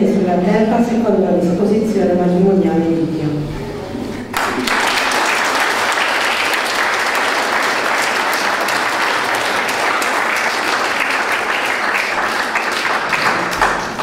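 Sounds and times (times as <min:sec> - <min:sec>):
crowd applauding: 0:04.3 - 0:14.0.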